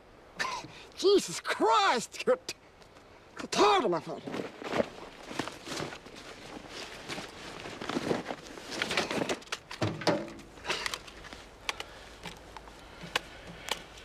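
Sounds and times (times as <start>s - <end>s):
rummaging through a pack: 4.2s - 14.0s.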